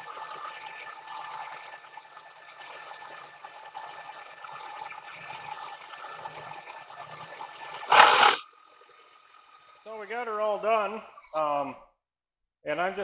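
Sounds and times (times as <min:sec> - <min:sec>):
thin steady tone: 0:00.0 - 0:11.6
milling cutter crackling hiss: 0:07.8 - 0:08.5.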